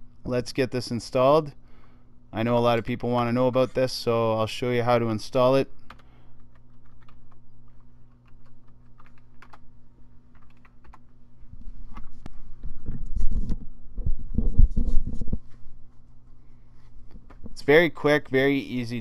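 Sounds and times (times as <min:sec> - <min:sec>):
steady low hum: 0:00.0 - 0:19.0
keyboard typing clicks: 0:08.2 - 0:09.6, 0:10.3 - 0:11.0.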